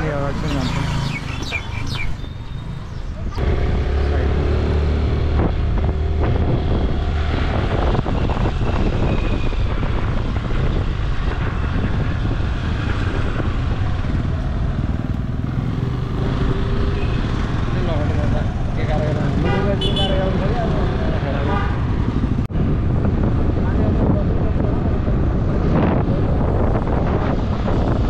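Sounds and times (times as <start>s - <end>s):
wind noise on microphone: 4.6s - 17.7s, 20.7s - 28.0s.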